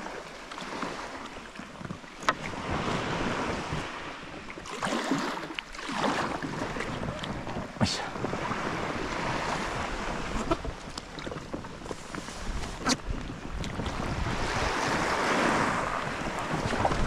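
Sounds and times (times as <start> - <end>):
water lapping against hull: 0.0 - 17.0
wind buffeting microphone: 2.4 - 4.4, 6.1 - 17.0.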